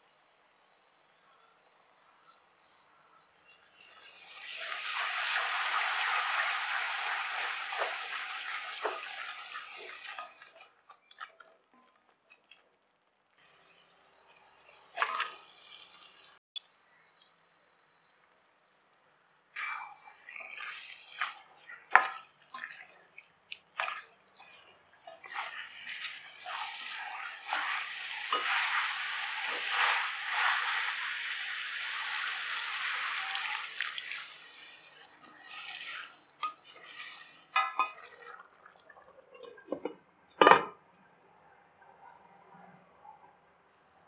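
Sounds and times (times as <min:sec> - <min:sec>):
food sizzling: 0:00.0 - 0:12.7, 0:13.4 - 0:16.4, 0:19.6 - 0:38.7.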